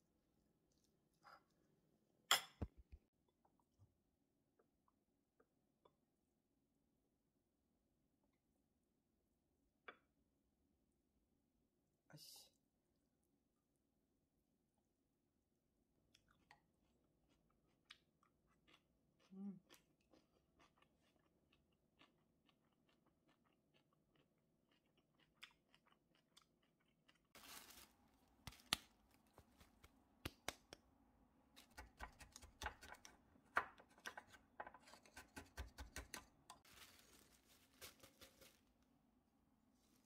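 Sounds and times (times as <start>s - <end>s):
faint chewing: 16.1s - 27.4s
plastic bag rustling and crinkling: 27.4s - 29.8s, 36.6s - 38.9s.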